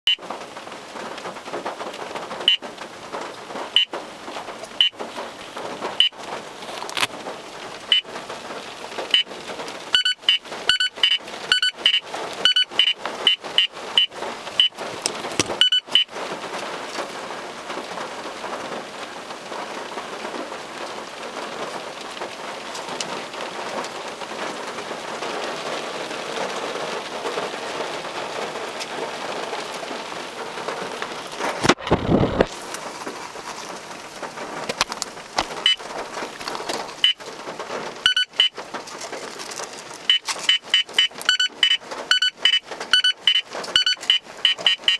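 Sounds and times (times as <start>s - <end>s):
rain on windshield: 0.1s - 44.9s
radar detector beeping: 9.9s - 14.8s, 15.4s - 16.1s, 38.0s - 38.5s, 40.1s - 44.9s.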